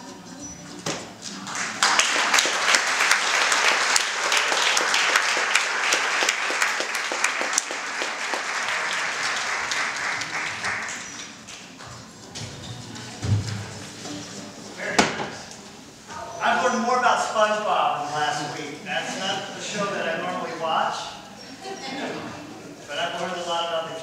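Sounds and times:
audience applauding: 0:01.3 - 0:11.9.

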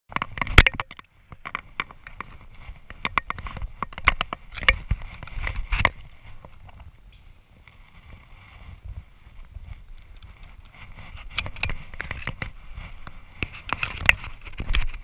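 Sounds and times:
launcher handling clicks and knocks: 0:03.0 - 0:05.0.

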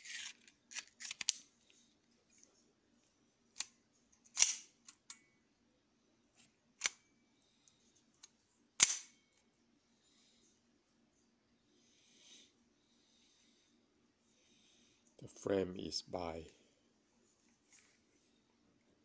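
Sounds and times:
pistol metallic clicks: 0:08.8 - 0:09.1.

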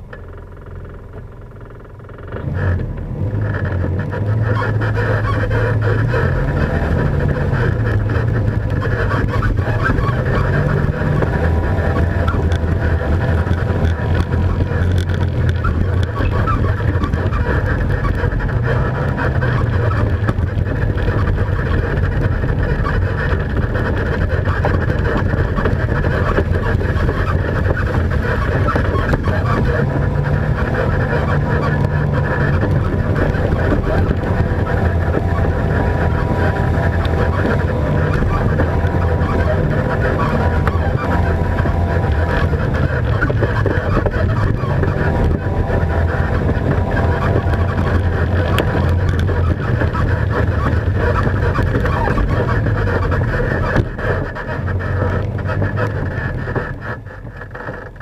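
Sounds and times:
atv engine running under load: 0:00.0 - 0:58.0.

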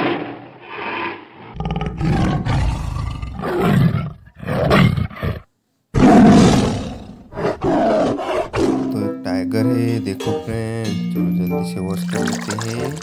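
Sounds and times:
tiger roaring and growling: 0:00.0 - 0:08.9.

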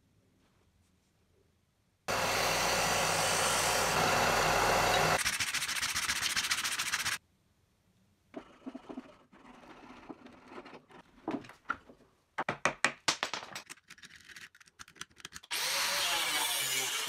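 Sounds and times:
belt sander grinding blade: 0:02.1 - 0:05.2.

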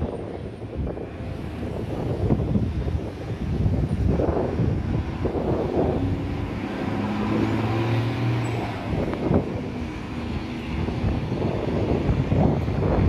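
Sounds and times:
distant jet airliner rumble: 0:00.0 - 0:13.0
wind on microphone: 0:00.0 - 0:13.0.

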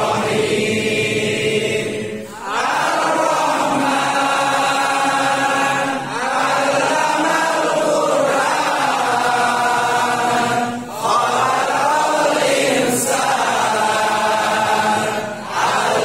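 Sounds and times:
men reciting in unison: 0:00.0 - 0:16.0.

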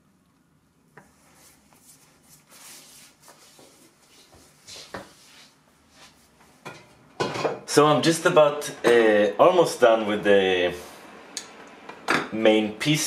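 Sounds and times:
soft rustling: 0:01.0 - 0:06.6.

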